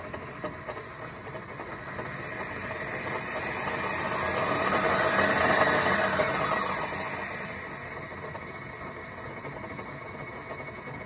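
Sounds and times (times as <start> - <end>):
bandsaw motor whining: 1.6 - 9.8.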